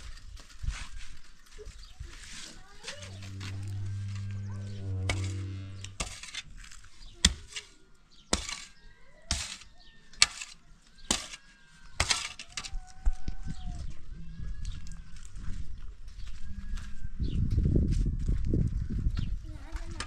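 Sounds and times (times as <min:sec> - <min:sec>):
shovel scraping stony dirt: 0:02.1 - 0:11.4, 0:12.0 - 0:12.8.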